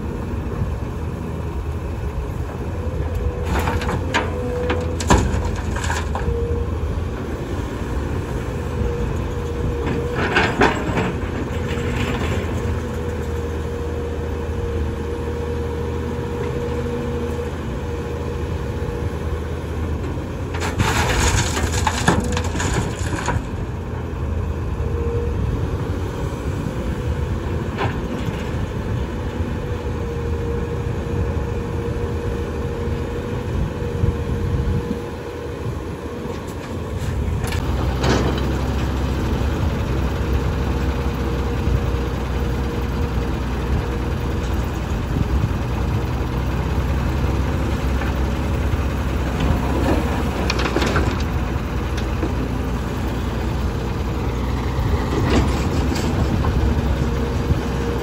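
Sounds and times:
excavator engine whining: 0.0s - 58.0s
dirt and rock crashing into truck bed: 20.6s - 23.6s.

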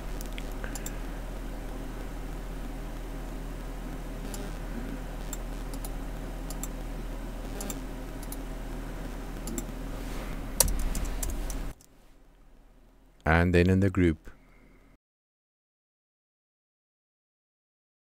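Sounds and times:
steady low hum: 0.0s - 15.0s
keyboard and mouse clicks: 0.2s - 1.0s, 5.3s - 6.8s, 7.6s - 8.4s, 9.4s - 9.8s, 10.6s - 11.9s.

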